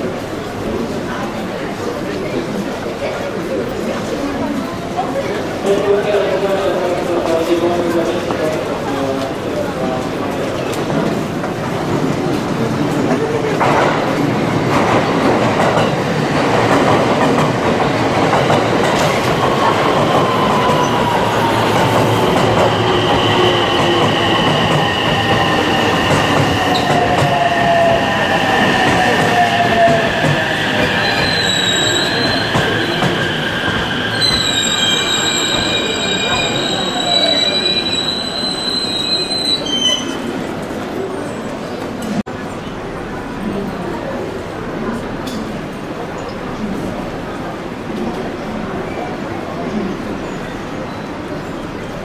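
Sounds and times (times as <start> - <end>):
electric train braking to a stop: 19.8 - 40.4
high brake squeal: 30.4 - 40.3.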